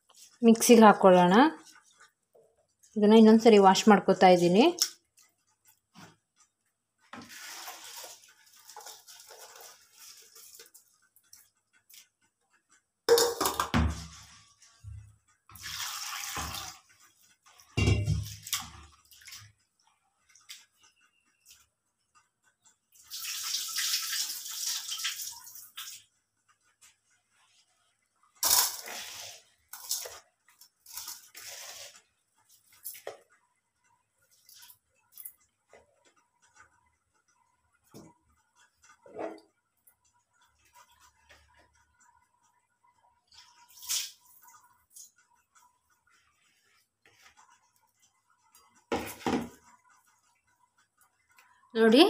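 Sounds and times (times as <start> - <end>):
water pouring and splashing: 7.2 - 11.0, 15.5 - 19.6, 23.0 - 26.1, 28.4 - 30.2, 30.8 - 33.2, 43.3 - 45.1.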